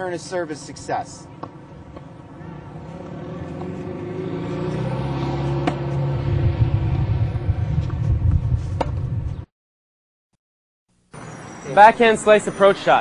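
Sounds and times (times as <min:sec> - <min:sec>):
vehicle engine rumbling: 0:00.0 - 0:09.5
sharp knocks: 0:05.6 - 0:05.9.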